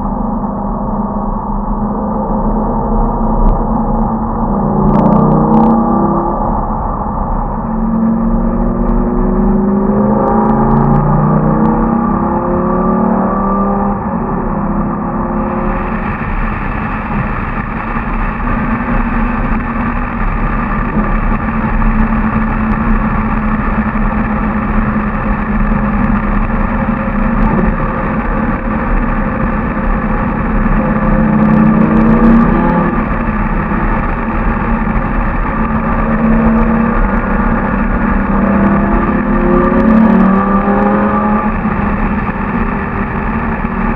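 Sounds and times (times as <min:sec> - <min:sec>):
car engine running: 0:13.7 - 0:43.9.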